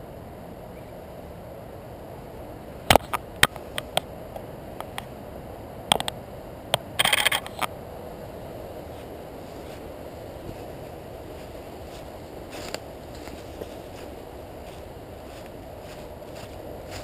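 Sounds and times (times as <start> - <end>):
camera clicks and clatter: 5.9 - 6.2, 6.8 - 7.7.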